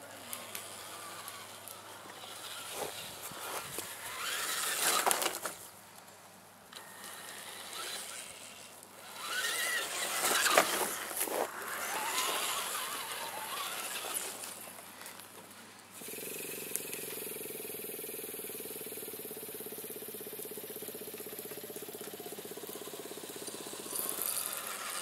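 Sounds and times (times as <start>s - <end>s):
electric motor and gears whining: 0.0s - 5.6s, 6.7s - 14.8s, 16.0s - 25.0s.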